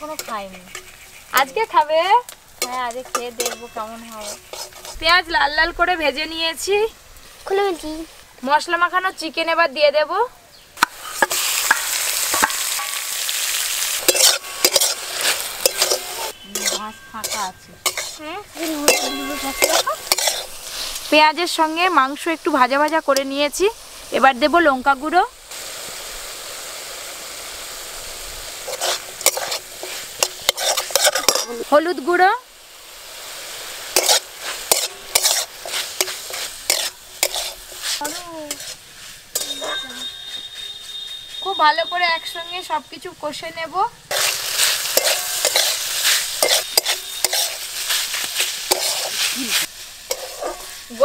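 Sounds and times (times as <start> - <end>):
metal spatula scraping pan: 0.0 - 5.2, 11.0 - 21.4, 28.6 - 31.7, 34.0 - 42.6, 44.1 - 51.0
chicken sizzling in hot oil: 0.0 - 10.2, 10.8 - 51.0.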